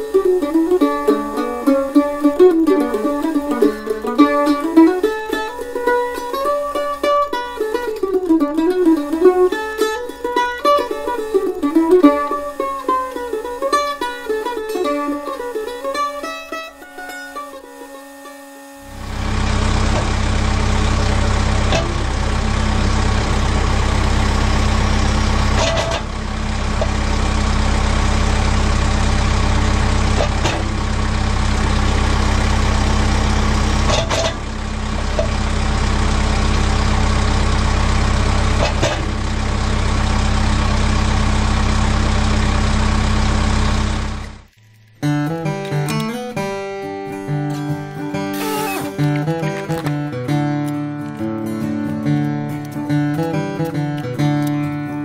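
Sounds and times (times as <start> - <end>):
tractor diesel engine running: 0.0 - 45.2, 48.4 - 50.2
hydraulic clicks: 18.9 - 22.5, 23.2 - 27.1, 30.1 - 30.9, 33.8 - 35.4, 38.6 - 39.3.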